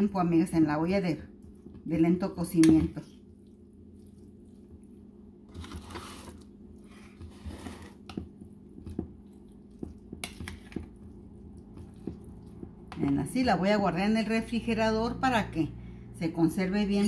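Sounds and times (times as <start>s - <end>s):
wet squishing: 3.0s - 13.4s
metal utensil scraping bowl: 5.5s - 8.2s.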